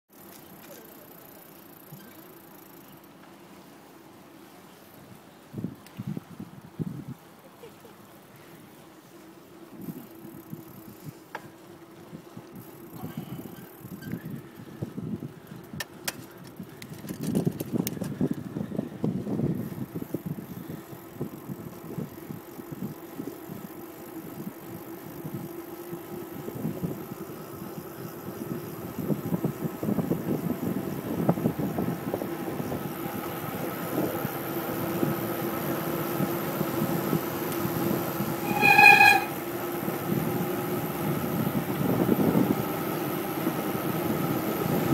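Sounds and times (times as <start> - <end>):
bicycle tyre and road noise: 0.1 - 44.9
wind buffeting microphone: 5.1 - 7.3, 12.0 - 44.9
sharp clicks and rattles: 15.7 - 18.2
loud pitched tone: 38.4 - 39.4.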